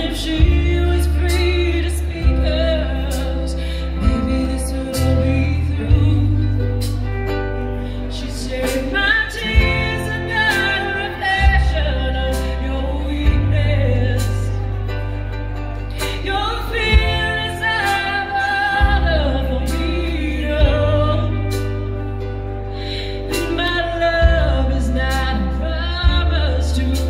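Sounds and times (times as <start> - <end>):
bass guitar: 0.0 - 27.0
guitars: 0.0 - 27.0
woman singing: 0.0 - 27.0.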